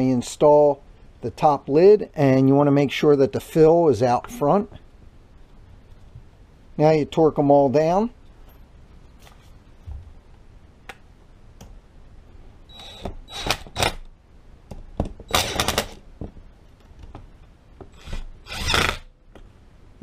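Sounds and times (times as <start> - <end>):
cordless impact driver hammering: 15.3 - 16.0.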